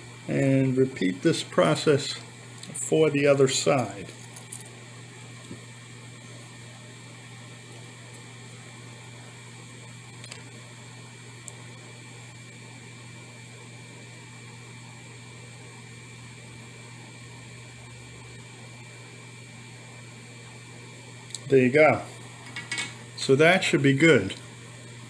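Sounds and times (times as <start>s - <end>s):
faint high whine and hiss: 0.0s - 25.0s
low electrical hum: 0.0s - 25.0s.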